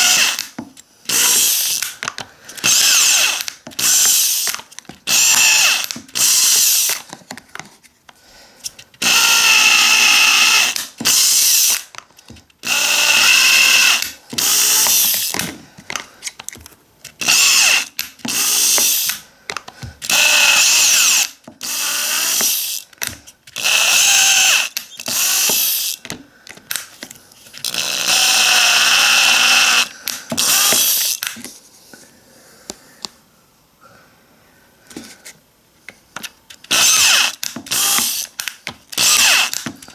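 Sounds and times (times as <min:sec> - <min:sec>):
cordless drill whining: 0:00.0 - 0:07.1, 0:08.7 - 0:15.6, 0:17.2 - 0:19.2, 0:20.0 - 0:26.2, 0:27.6 - 0:31.3, 0:36.6 - 0:39.9.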